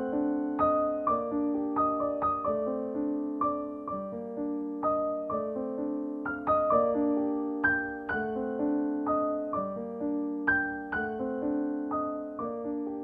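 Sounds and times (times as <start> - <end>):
gentle piano piece: 0.0 - 13.0.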